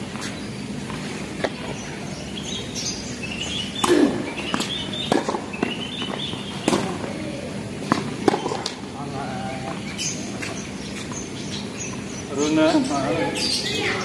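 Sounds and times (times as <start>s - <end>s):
tennis ball bouncing: 2.8s - 7.2s, 7.8s - 8.9s
racket striking tennis ball: 3.8s - 7.1s, 7.8s - 8.8s.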